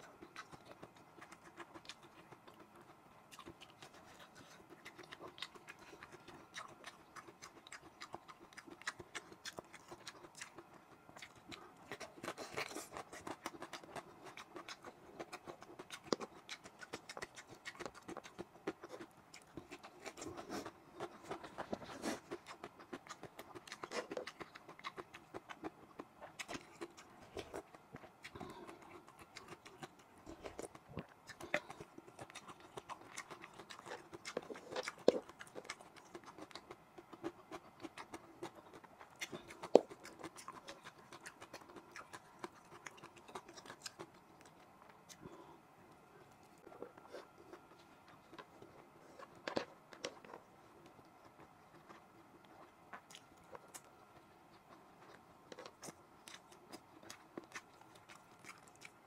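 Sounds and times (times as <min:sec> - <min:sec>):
chewing and lip smacking: 0:00.0 - 0:59.0.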